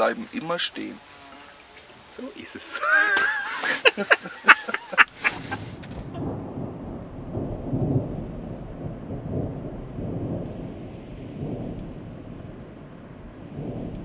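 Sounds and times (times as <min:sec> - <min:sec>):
low rolling rumble: 0:05.0 - 0:14.0.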